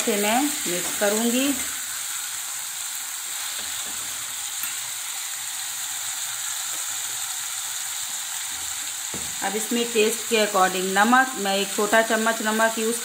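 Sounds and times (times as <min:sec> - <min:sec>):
vegetables sizzling in hot oil: 0:00.0 - 0:13.0.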